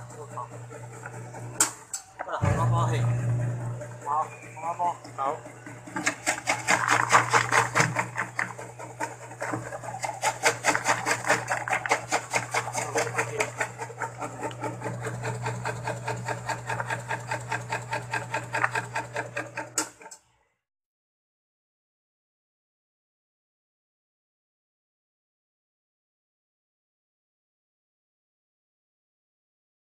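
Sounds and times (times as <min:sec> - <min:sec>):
motor hum: 0:02.4 - 0:19.8.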